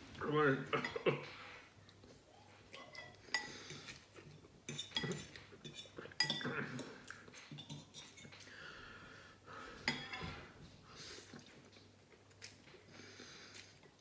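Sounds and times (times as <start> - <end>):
cutlery clinking against bowl: 2.8 - 8.5, 9.9 - 10.4
sniffs and breaths: 12.7 - 13.9.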